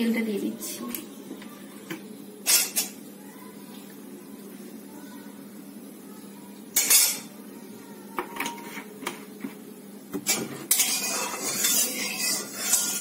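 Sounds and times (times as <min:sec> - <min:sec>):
metal spatula scraping a wok: 0:10.3 - 0:13.0.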